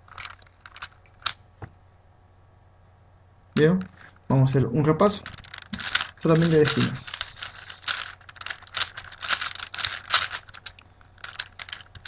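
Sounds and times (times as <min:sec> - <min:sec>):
puzzle cube clicking and rattling: 0:00.0 - 0:01.4, 0:05.1 - 0:12.0.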